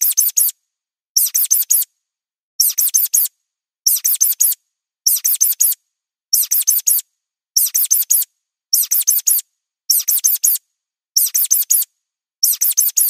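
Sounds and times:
high-pitched mouse squeaks: 0:00.0 - 0:00.6, 0:01.2 - 0:01.9, 0:02.6 - 0:03.3, 0:03.9 - 0:07.0, 0:07.6 - 0:10.6, 0:11.2 - 0:13.0.

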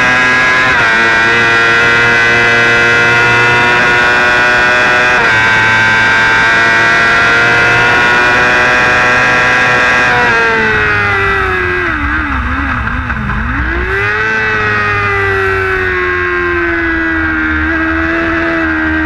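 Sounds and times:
motorcycle engine at full throttle: 0:00.0 - 0:19.0
wind rushing: 0:09.2 - 0:17.2.

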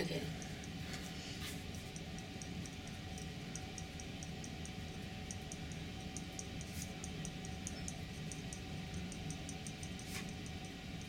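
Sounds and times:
steady low hum: 0:00.0 - 0:11.0
quick high-pitched ticking: 0:01.6 - 0:11.0.

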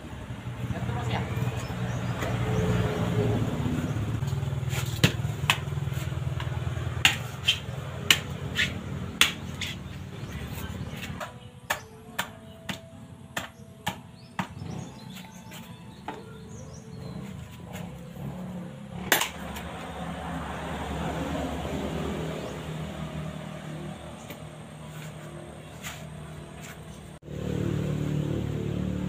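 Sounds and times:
machete chopping coconut shell: 0:04.3 - 0:09.9, 0:11.0 - 0:12.8, 0:13.4 - 0:15.3, 0:19.0 - 0:19.8.

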